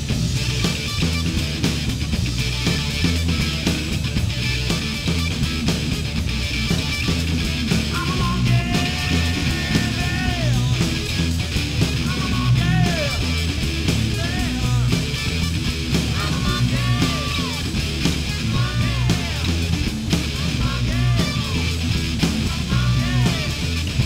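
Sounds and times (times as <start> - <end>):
drum kit: 0.0 - 24.0
electric guitar: 0.0 - 24.0
man singing: 7.9 - 11.0, 12.0 - 13.4, 14.0 - 15.1, 16.1 - 17.7, 18.4 - 19.6, 20.3 - 23.8.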